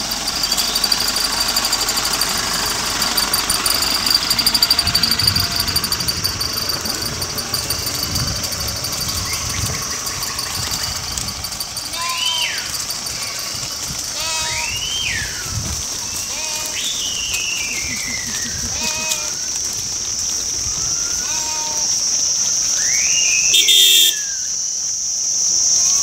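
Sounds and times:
sheep feet scuffing on road: 0:09.1 - 0:21.9
high-pitched buzz: 0:23.5 - 0:24.2.

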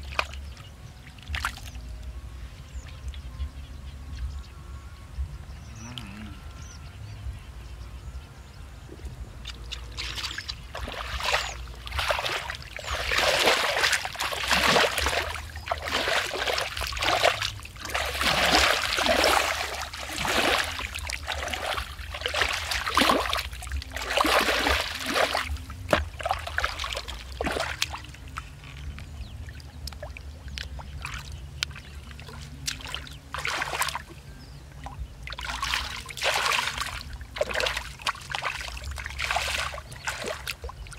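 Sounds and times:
hands splashing in muddy water: 0:09.4 - 0:29.0, 0:29.7 - 0:34.1, 0:35.3 - 0:40.9.

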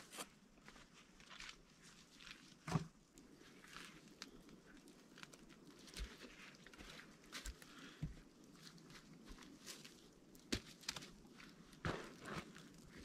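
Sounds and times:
footsteps crunching through snow: 0:08.6 - 0:13.0.

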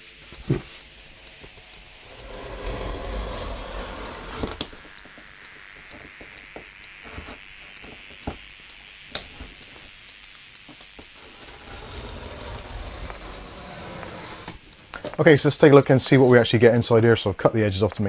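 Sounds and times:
small clicks and ticks: 0:00.3 - 0:18.0
knife cutting cardboard: 0:02.1 - 0:04.8, 0:11.2 - 0:14.6.

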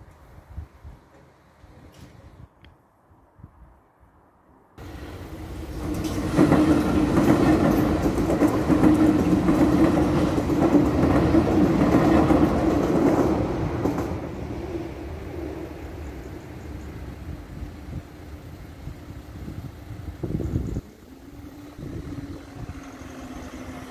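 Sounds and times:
electric train passing: 0:04.8 - 0:23.9.

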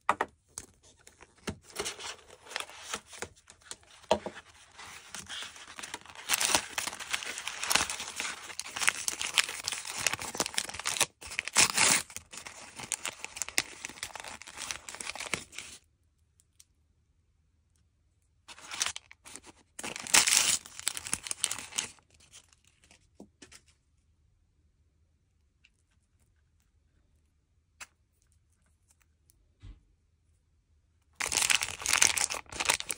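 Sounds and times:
plastic packaging crinkling and ripping: 0:00.9 - 0:15.8, 0:18.5 - 0:23.0, 0:31.2 - 0:32.9.

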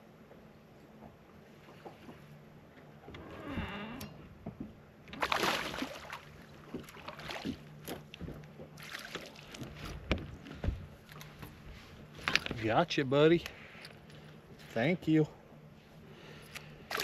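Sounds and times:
knocks and clicks against boat: 0:00.8 - 0:05.3, 0:06.6 - 0:12.8
water splashing: 0:05.1 - 0:08.0, 0:08.8 - 0:09.9.

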